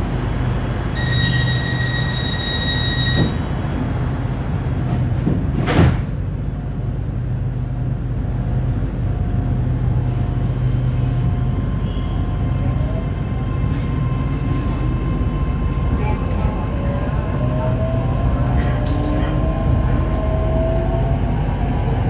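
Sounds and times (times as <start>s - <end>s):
rising train motor whine: 0.0s - 5.3s, 6.2s - 22.0s
high warning tone: 0.9s - 3.4s.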